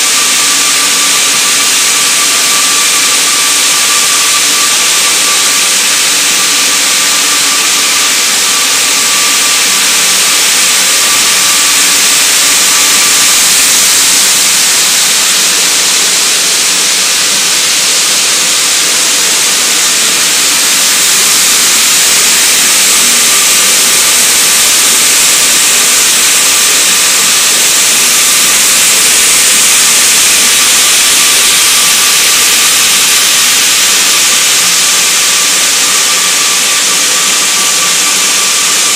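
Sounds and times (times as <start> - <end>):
faint steady machine whine: 0.0 - 38.9
packaging machinery hiss: 0.0 - 38.9.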